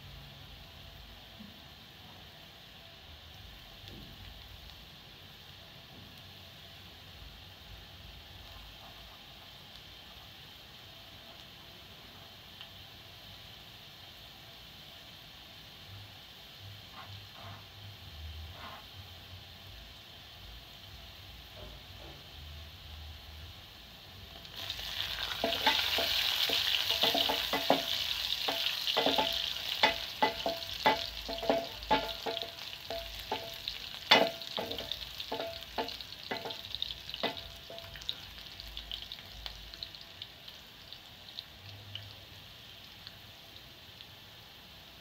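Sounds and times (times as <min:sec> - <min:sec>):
onions sizzling in oil: 0:00.0 - 0:45.0
wooden spoon knocking on pot: 0:25.4 - 0:38.0.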